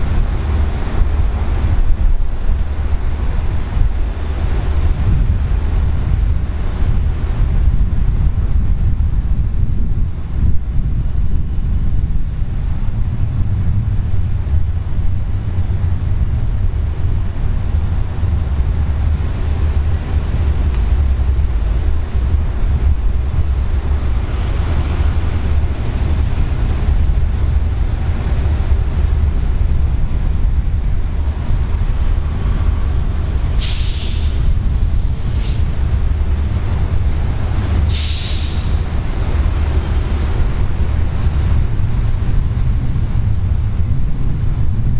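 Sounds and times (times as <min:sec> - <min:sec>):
diesel locomotive idling: 0:00.0 - 0:44.9
air release hiss: 0:33.4 - 0:35.9, 0:37.8 - 0:39.0.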